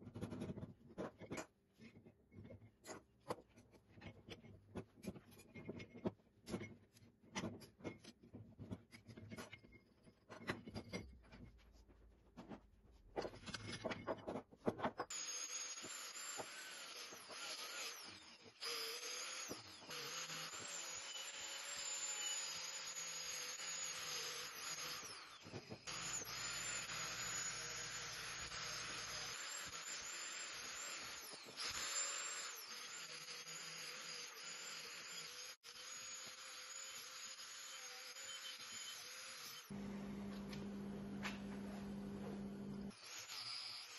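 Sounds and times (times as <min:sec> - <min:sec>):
angle grinder on metal: 0:15.1 - 0:39.8, 0:42.8 - 0:43.9.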